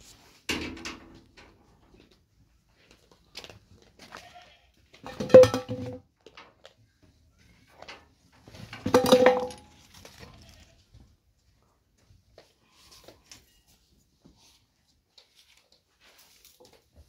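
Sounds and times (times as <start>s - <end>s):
metal objects clattering: 5.0s - 6.0s, 7.8s - 10.2s.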